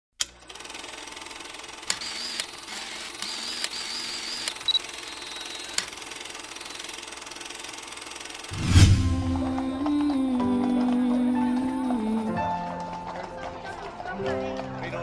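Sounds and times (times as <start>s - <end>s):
film projector rattling: 0.3s - 8.5s
loud music: 8.6s - 10.1s.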